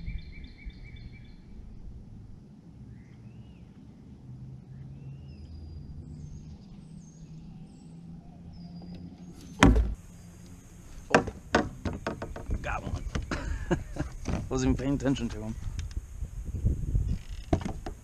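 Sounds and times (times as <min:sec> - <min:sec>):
low outdoor rumble: 0:00.0 - 0:18.0
birds chirping: 0:02.8 - 0:18.0
knocks: 0:09.6 - 0:10.0, 0:11.1 - 0:13.4, 0:17.5 - 0:18.0
loud thump: 0:09.6 - 0:10.0.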